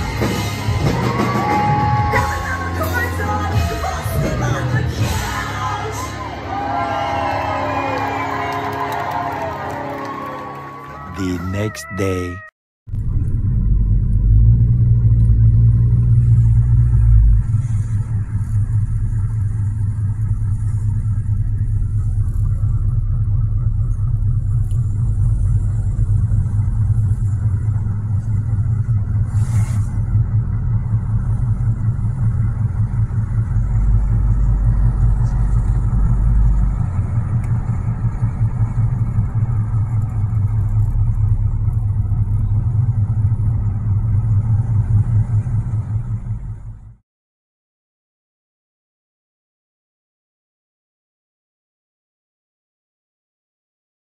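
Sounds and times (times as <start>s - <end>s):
car engine and road noise: 12.9s - 47.0s.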